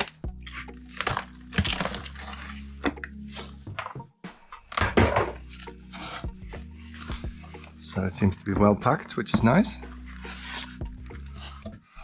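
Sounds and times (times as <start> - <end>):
plastic wrap crinkling: 0.0 - 2.7.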